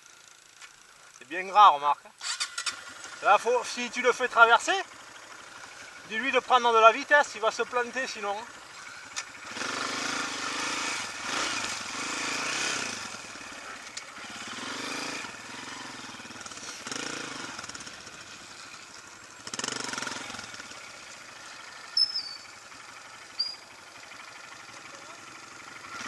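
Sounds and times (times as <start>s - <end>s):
dirt bike engine revving: 2.2s - 26.0s
high downward chirps: 21.9s - 22.6s, 23.3s - 23.7s.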